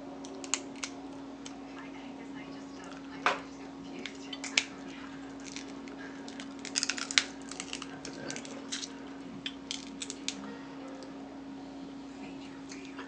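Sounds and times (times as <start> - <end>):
low hum: 0.0 - 13.0
crab shells cracking: 0.2 - 1.6, 4.0 - 10.4
chewing: 3.9 - 11.1.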